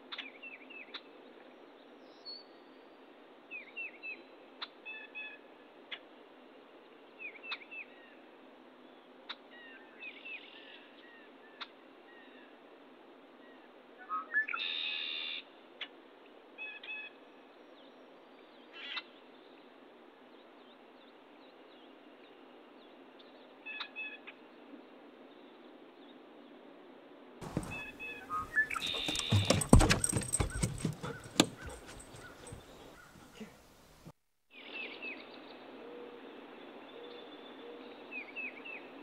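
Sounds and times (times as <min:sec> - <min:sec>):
birds chirping: 0:27.4 - 0:33.6
faint steady hiss: 0:31.9 - 0:39.0.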